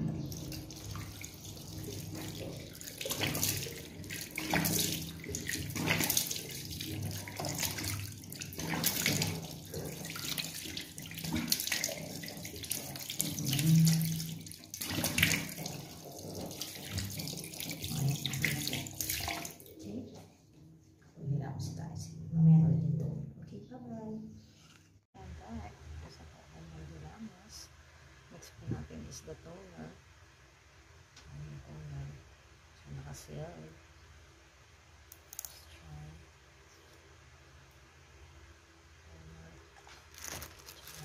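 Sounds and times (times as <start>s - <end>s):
tap water running into sink: 0.0s - 19.8s
water splashing face washing: 0.2s - 20.0s, 39.8s - 41.0s.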